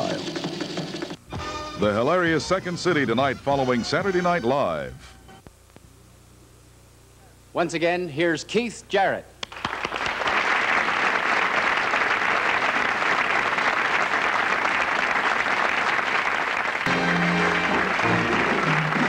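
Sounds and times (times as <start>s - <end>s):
music: 0.0s - 5.5s, 16.9s - 19.0s
audience applauding: 9.4s - 19.0s.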